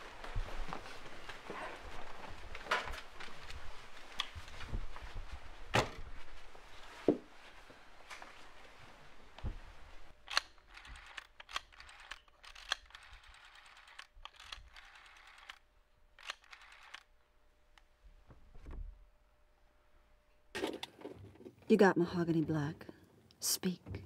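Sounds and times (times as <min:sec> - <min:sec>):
rotary phone dial clicking: 0:10.3 - 0:15.6, 0:16.2 - 0:17.1.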